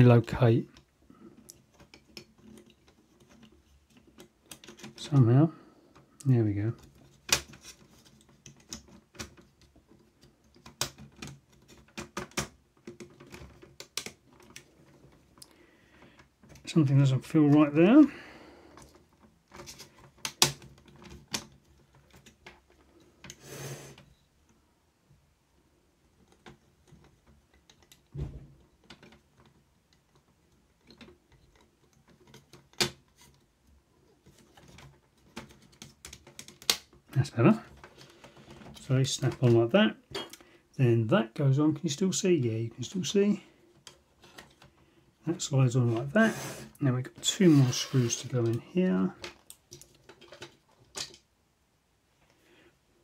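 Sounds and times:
plastic clicks and knocks: 6.8 - 15.6, 34.2 - 40.5.

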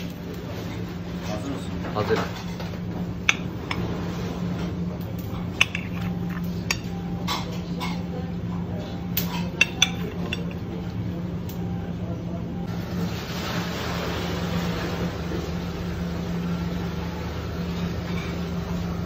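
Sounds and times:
steady low hum: 0.0 - 13.0
knife clinking on plate and skewers: 9.2 - 10.6.

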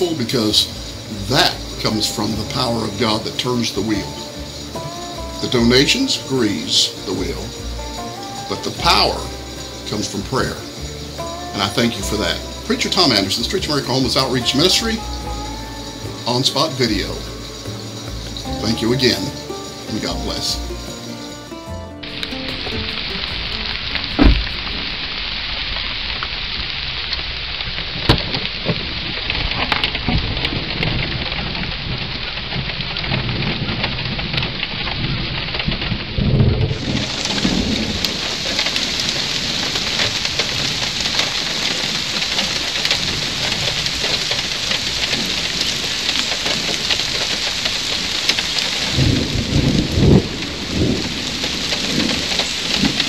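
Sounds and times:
heavy rain falling: 0.0 - 53.0
thunder cracks and rumbles: 22.2 - 26.9, 27.7 - 53.0.

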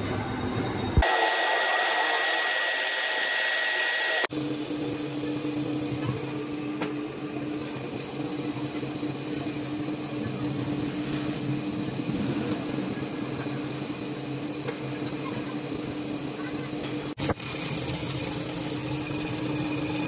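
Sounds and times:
metal lathe humming: 1.0 - 5.7.

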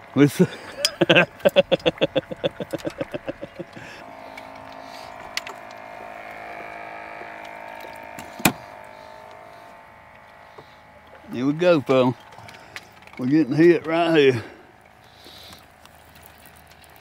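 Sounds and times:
small electric motor humming: 0.0 - 17.0
fast run of small clicks: 1.1 - 8.4, 14.8 - 17.0.

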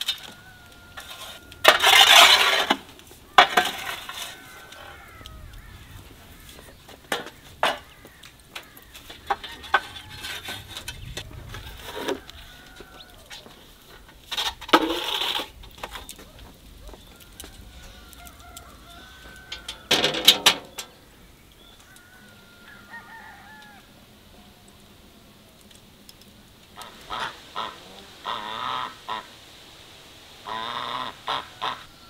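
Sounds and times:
chickens clucking: 0.0 - 21.0, 26.8 - 29.4, 30.4 - 32.0
small birds chirping: 3.0 - 14.0, 15.6 - 19.9, 20.6 - 23.6.

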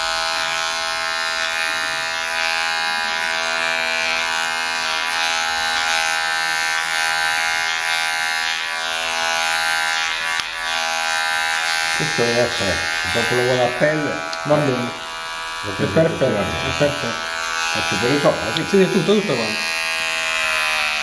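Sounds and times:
electric hair clippers buzzing: 0.0 - 21.0.

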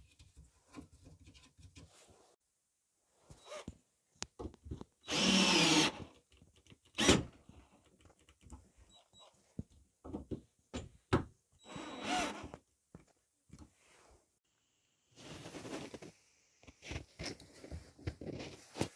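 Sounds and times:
cordless drill into wood: 5.0 - 6.1, 7.0 - 7.3, 11.6 - 12.6.

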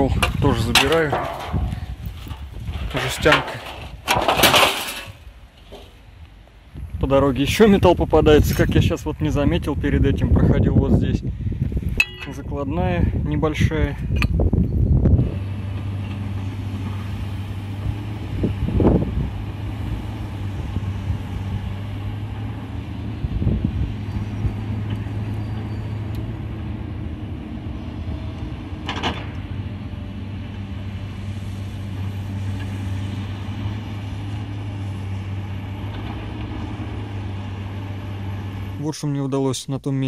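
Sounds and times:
vehicle engine humming: 0.0 - 39.4.

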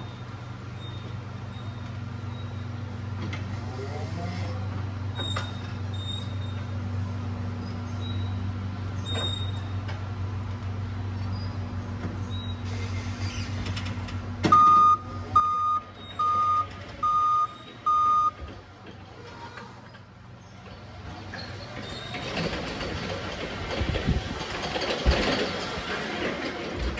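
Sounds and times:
forklift reversing alarm beeps: 0.0 - 2.8, 14.5 - 19.2.

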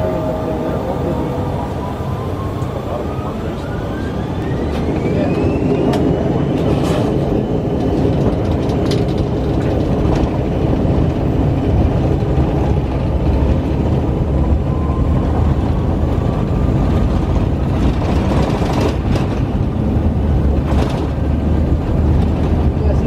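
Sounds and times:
jet engine rumble in cabin: 0.0 - 23.0.

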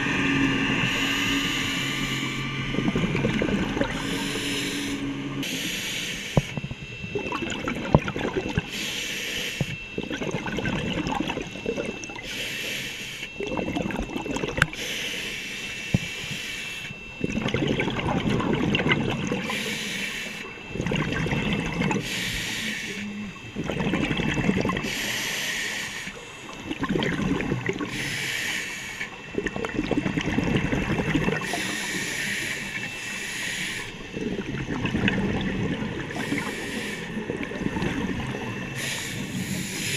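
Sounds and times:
exhaled air bubbling: 0.0 - 39.9
regulator inhalation hiss: 4.0 - 6.5, 8.7 - 9.8, 12.3 - 13.3, 14.7 - 16.9, 19.4 - 20.5, 22.0 - 23.1, 24.8 - 26.3, 27.9 - 29.2, 31.4 - 34.0, 36.1 - 37.2, 38.7 - 39.9.

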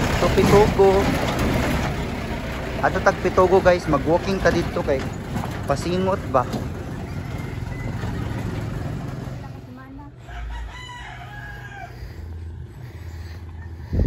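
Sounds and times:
low background rumble: 0.0 - 14.0
rooster crowing: 6.8 - 8.6, 10.2 - 12.4.

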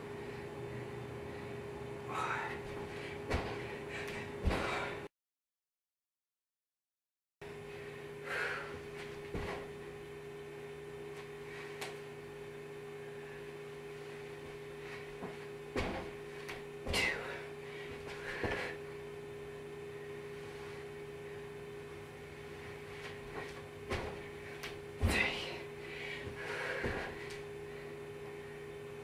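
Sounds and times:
electrical hum: 0.0 - 5.1, 7.4 - 29.0
thumps on carpeted floor: 3.3 - 3.6, 15.2 - 17.1, 23.3 - 24.3.

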